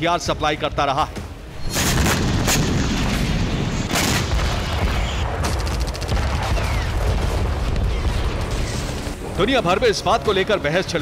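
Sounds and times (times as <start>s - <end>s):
heavy booms: 1.6s - 8.6s
rapid gunfire: 1.7s - 9.1s.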